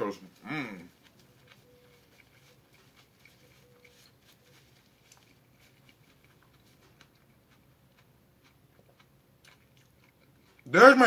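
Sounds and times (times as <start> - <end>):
person eating: 0.1 - 10.8
food wrapping rustling: 0.2 - 7.6.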